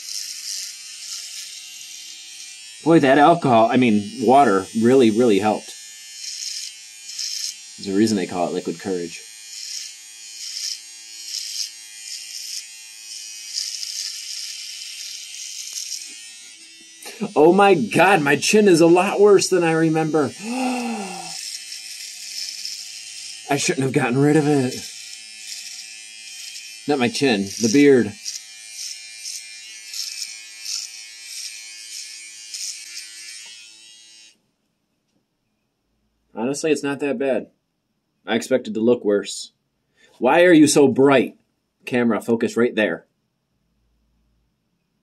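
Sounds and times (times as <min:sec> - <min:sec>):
electric shaver buzzing: 0:00.0 - 0:34.4.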